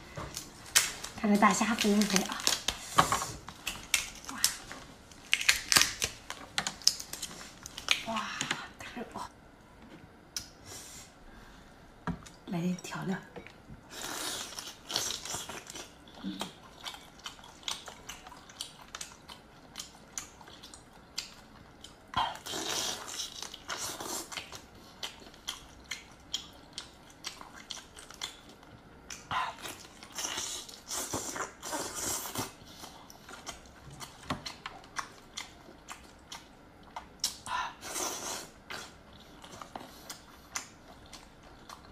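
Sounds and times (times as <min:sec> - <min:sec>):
chewing prawn meat: 0:14.0 - 0:41.9.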